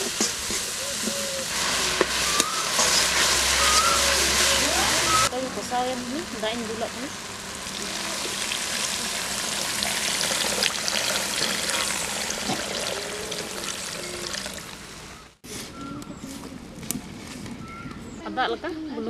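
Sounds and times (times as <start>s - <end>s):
water pouring into curry: 7.2s - 15.1s.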